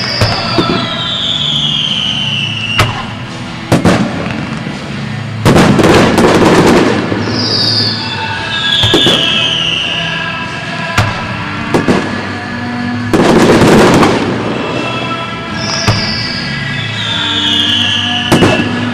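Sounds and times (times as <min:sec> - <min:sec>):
falling firework whistles: 0:00.0 - 0:04.1, 0:06.6 - 0:10.3, 0:15.5 - 0:18.9
firework crackling burst: 0:00.0 - 0:10.1, 0:11.1 - 0:18.9
firework bangs: 0:00.0 - 0:10.2, 0:10.8 - 0:18.9.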